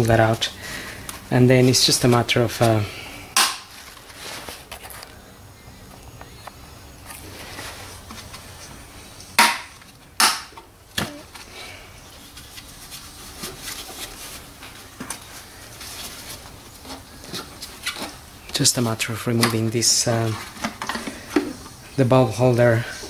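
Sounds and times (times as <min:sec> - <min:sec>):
handling rustles: 0:03.6 - 0:05.2, 0:11.0 - 0:21.8.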